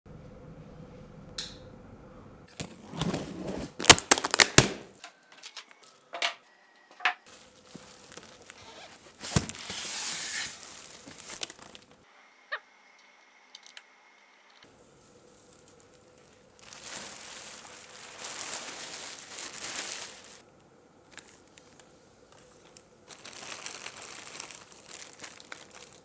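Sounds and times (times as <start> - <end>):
plastic wrapping crinkling: 3.7 - 4.9, 7.3 - 12.0, 15.2 - 20.4, 21.1 - 26.0.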